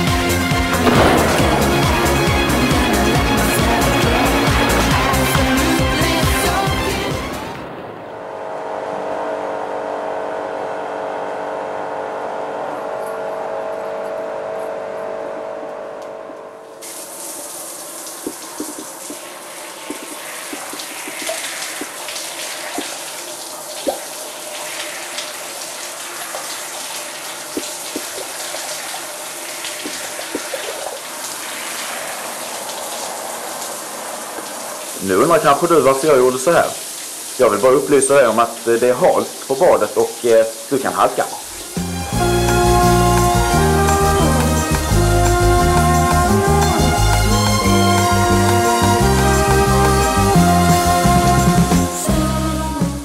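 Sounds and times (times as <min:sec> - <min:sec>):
shower spraying water: 0:00.0 - 0:07.1, 0:16.6 - 0:52.2
steady drone of held pitches: 0:00.0 - 0:17.0, 0:41.4 - 0:53.0
water drips: 0:16.0 - 0:41.9.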